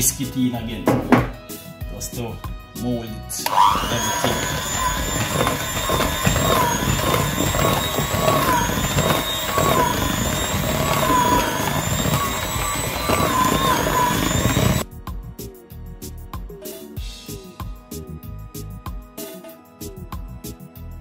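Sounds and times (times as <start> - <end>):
background music: 0.0 - 8.8, 11.1 - 21.0
electric hand mixer whining: 3.4 - 14.9.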